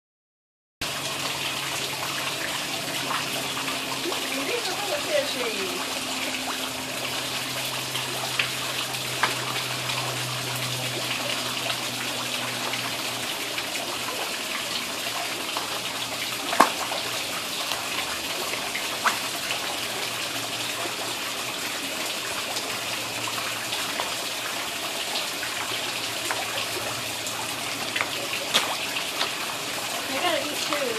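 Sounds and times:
water trickling into a pond: 0:00.8 - 0:30.9
fish splashing at the surface: 0:07.2 - 0:30.7.

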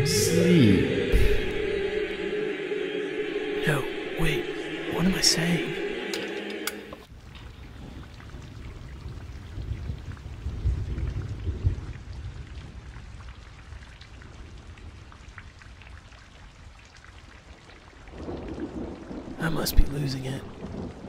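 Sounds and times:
low rumble: 0:00.0 - 0:07.1
steady rain: 0:03.6 - 0:21.0
rain drop ticks: 0:06.1 - 0:19.8.

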